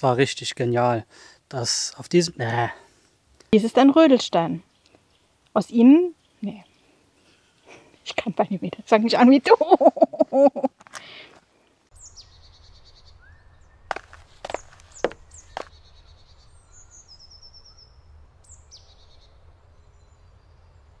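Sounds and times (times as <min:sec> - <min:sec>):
birds chirping: 0:00.0 - 0:11.3, 0:11.9 - 0:21.0
bird trill: 0:12.0 - 0:20.9.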